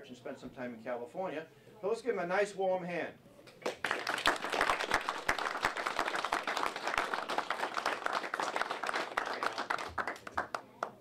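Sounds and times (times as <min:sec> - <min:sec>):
audience applause: 0:03.6 - 0:10.9.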